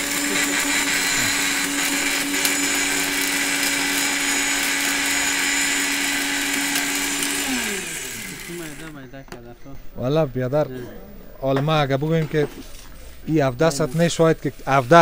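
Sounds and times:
blender grinding glass: 0.0 - 9.0.

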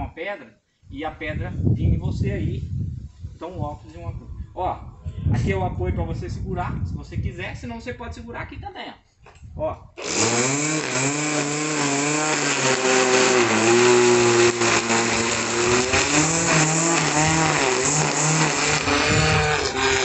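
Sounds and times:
string trimmer cutting grass: 10.0 - 20.0.

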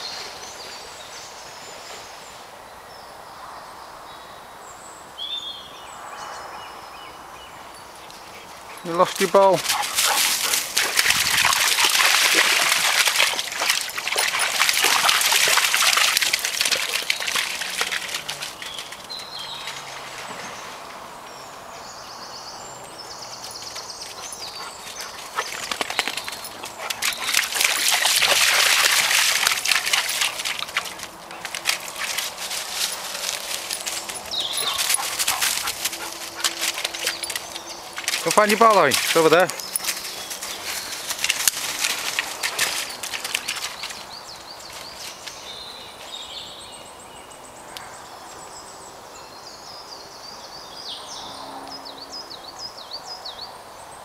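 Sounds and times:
footsteps crunching dry leaves: 24.9 - 44.1.

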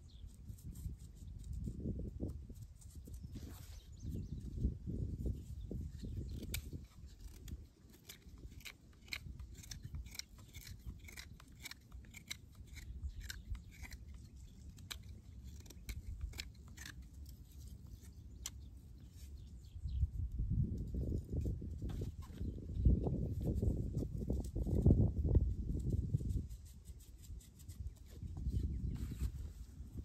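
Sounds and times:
knife scraping wood: 5.8 - 19.4.

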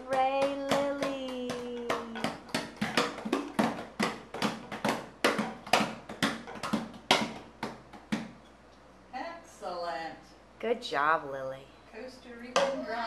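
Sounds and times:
hand drum slapped: 0.0 - 8.4.

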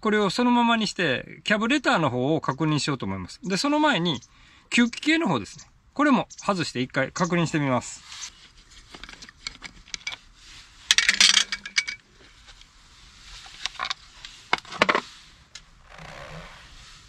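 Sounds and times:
soft rubbing of foam filter: 7.9 - 9.5, 10.2 - 10.9, 12.1 - 17.0
metallic clicks and clinks: 10.9 - 12.0.

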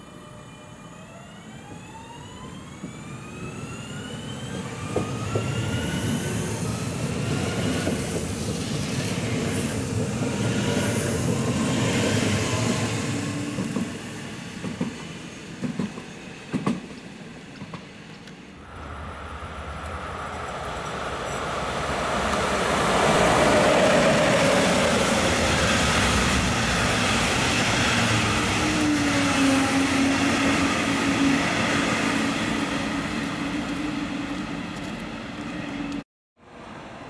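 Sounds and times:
train drive whine: 0.0 - 37.0
wheel and rail rumble: 17.6 - 36.0.

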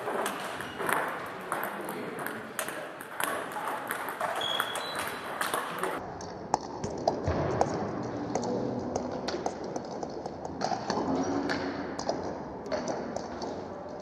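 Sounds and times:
table tennis balls clicking: 0.0 - 7.2.

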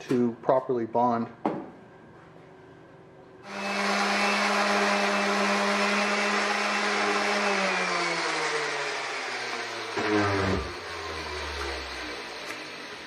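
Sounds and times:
orbital sander running: 3.4 - 13.0.

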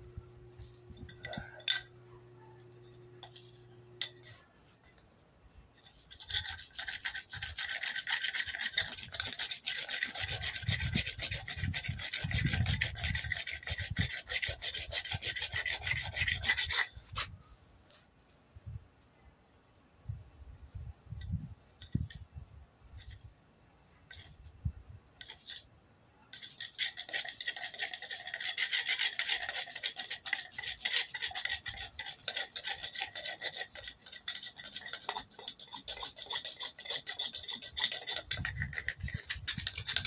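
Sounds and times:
rasping friction scrub: 5.8 - 17.3, 26.3 - 40.0.

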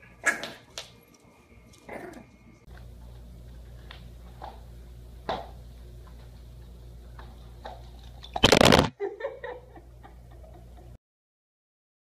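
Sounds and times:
steady low hum: 0.0 - 11.0
phone handling noise: 8.4 - 8.9.

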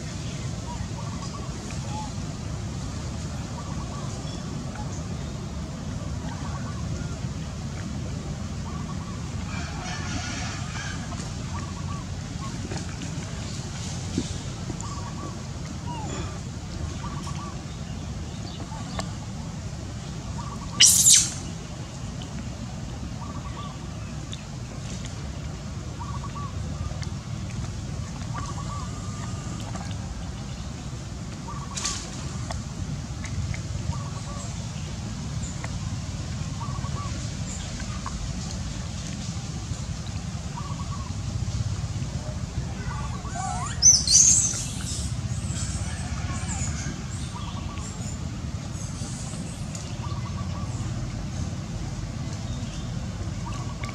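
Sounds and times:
low background rumble: 0.0 - 53.9
high-pitched gliding chirping calls: 20.6 - 21.4, 43.0 - 45.1.

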